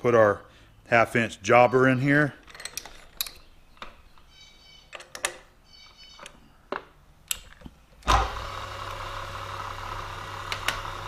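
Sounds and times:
metal clicks: 2.4 - 8.1
drilling machine motor humming: 8.1 - 11.0.

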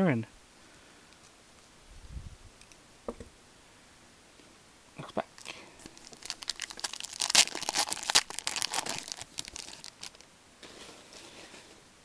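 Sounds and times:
wrapper tearing and crinkling: 5.8 - 10.2.

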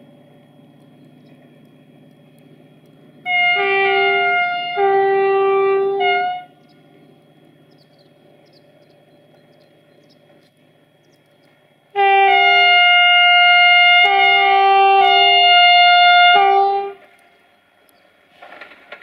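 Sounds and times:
train air horn: 3.2 - 6.7, 11.9 - 17.2.

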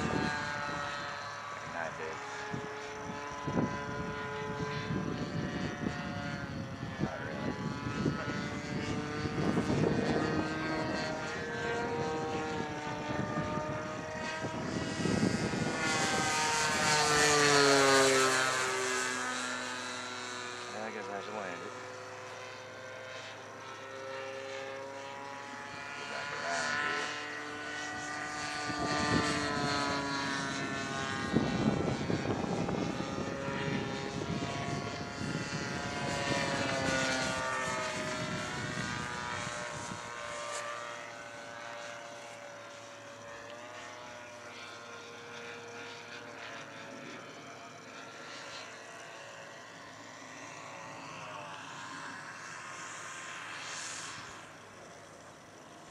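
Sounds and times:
model plane engine and propeller: 0.0 - 55.9.

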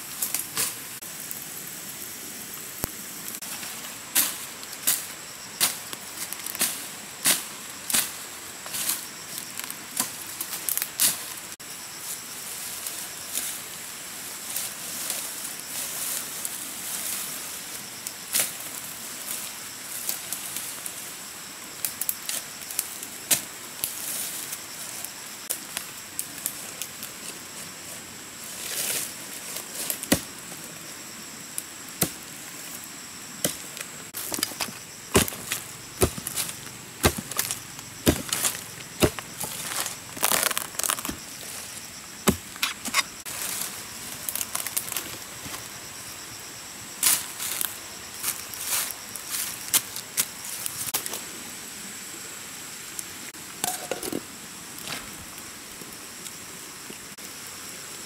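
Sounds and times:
high insect drone: 0.0 - 58.0
machete chopping undergrowth: 30.1 - 30.3, 34.2 - 41.3, 42.2 - 43.1.

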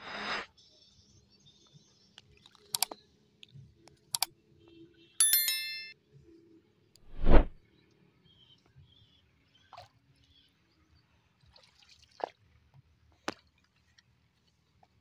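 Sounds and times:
mouse clicks: 2.8 - 3.0
bright bell-like chime: 5.2 - 6.0.

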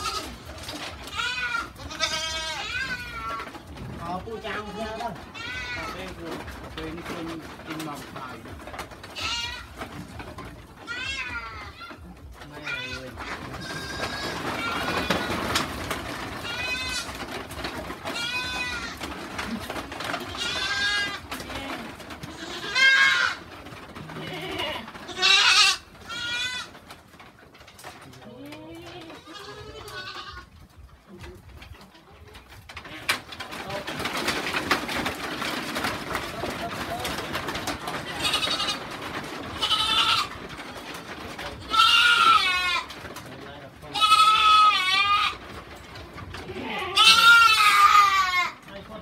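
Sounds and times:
goats bleating: 0.0 - 3.7, 4.4 - 6.2, 9.1 - 10.0, 10.8 - 27.0, 28.3 - 30.6, 37.6 - 43.0, 43.9 - 45.6, 46.4 - 48.6.

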